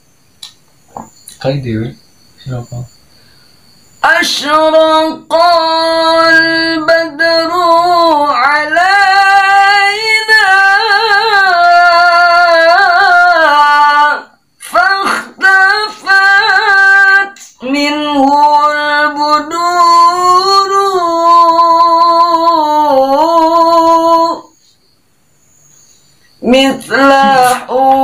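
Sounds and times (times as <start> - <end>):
man singing devotional song: 4.0 - 24.5, 26.4 - 28.0.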